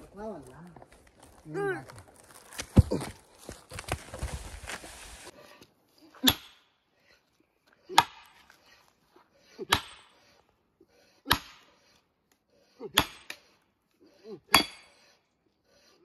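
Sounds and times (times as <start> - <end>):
hammer striking steel wedge: 9.7 - 10.1, 11.3 - 11.7, 13.0 - 13.4, 14.5 - 14.9.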